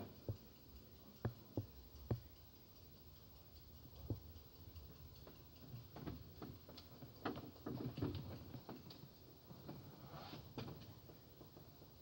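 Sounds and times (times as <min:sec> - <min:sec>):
faint clicks and knocks: 0:00.0 - 0:12.0.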